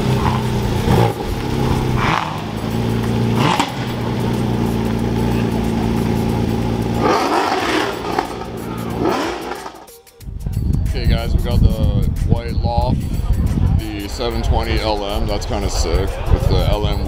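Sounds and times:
car engine pulling away: 0:00.0 - 0:10.0.

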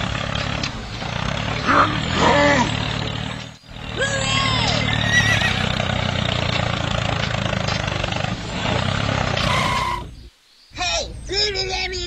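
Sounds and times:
tractor engine running: 0:00.0 - 0:10.3.

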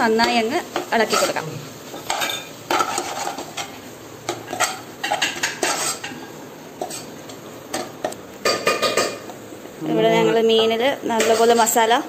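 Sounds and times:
spoon scraping saucepan: 0:02.0 - 0:07.1.

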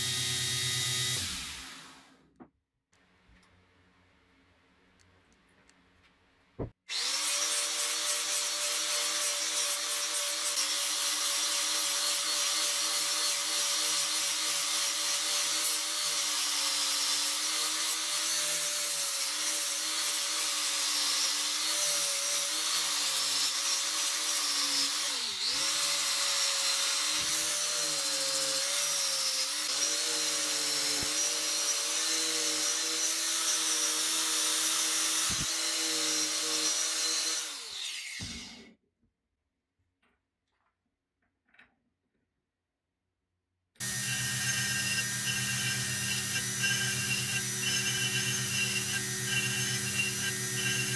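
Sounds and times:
grinder winding down: 0:00.0 - 0:02.2, 0:43.8 - 0:50.9
angle grinder grinding metal: 0:06.9 - 0:38.7, 0:43.8 - 0:50.9.

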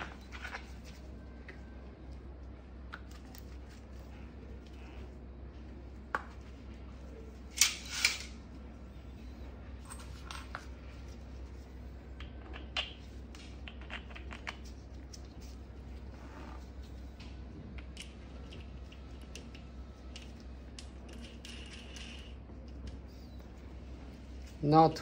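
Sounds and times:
parts clattering: 0:07.5 - 0:08.4.

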